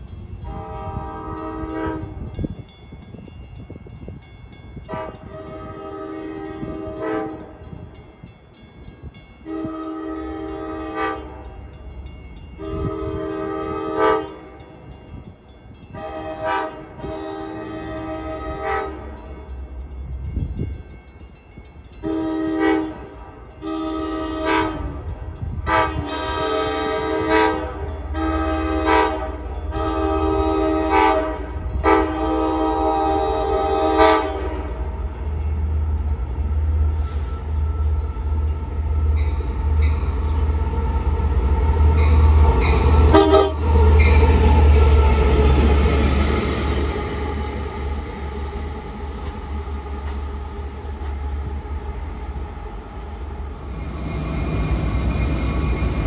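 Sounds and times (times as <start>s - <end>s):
low train rumble: 0.0s - 56.0s
locomotive air horn blasts: 0.4s - 2.3s, 4.9s - 7.6s, 9.4s - 11.5s, 12.6s - 14.5s, 15.9s - 19.2s, 22.0s - 35.0s, 36.9s - 47.7s.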